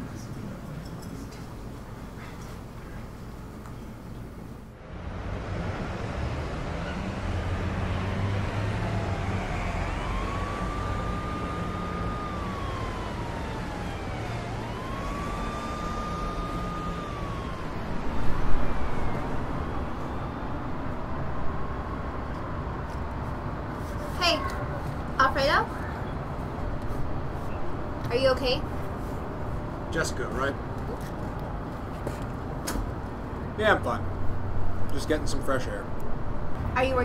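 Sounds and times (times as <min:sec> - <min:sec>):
city traffic rumble: 0:00.0 - 0:37.0
emergency siren wailing: 0:05.2 - 0:22.7.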